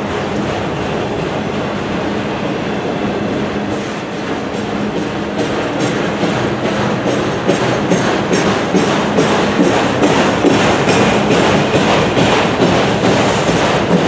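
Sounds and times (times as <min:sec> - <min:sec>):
train wheels on track: 0:00.0 - 0:14.0
wheels clicking over rail joints: 0:03.7 - 0:14.0.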